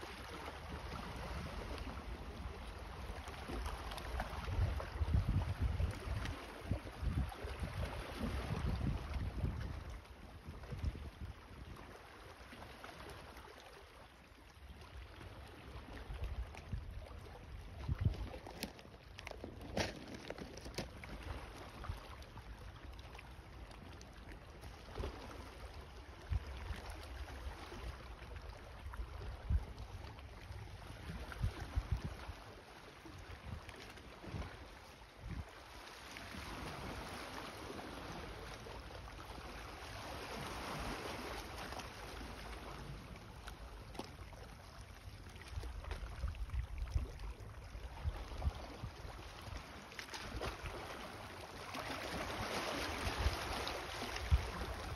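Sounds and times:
wind rumbling on microphone: 0:00.7 - 0:11.9, 0:16.0 - 0:18.7, 0:28.8 - 0:32.5, 0:33.1 - 0:35.6, 0:45.4 - 0:50.5, 0:52.8 - 0:54.9.

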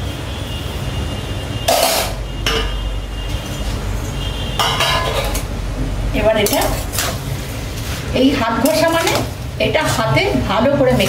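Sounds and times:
utensils clinking against metal pan: 0:01.7 - 0:02.8, 0:04.6 - 0:05.6, 0:06.2 - 0:07.3, 0:08.5 - 0:11.0.

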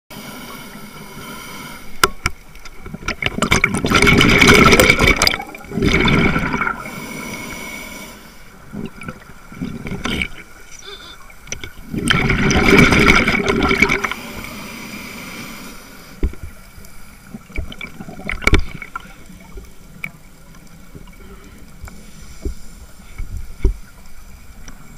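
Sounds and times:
quiet regulator hiss: 0:00.1 - 0:03.2, 0:05.2 - 0:12.5, 0:13.3 - 0:24.9
gurgling exhaled bubbles underwater: 0:02.7 - 0:07.0, 0:08.6 - 0:14.3, 0:17.2 - 0:21.8.

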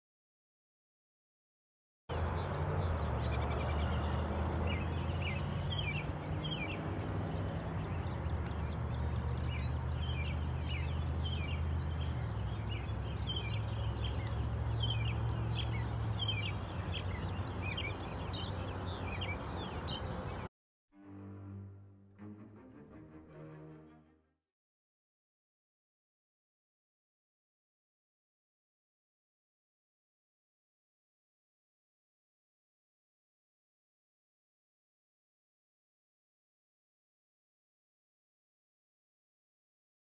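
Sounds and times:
small birds chirping: 0:02.1 - 0:20.5.

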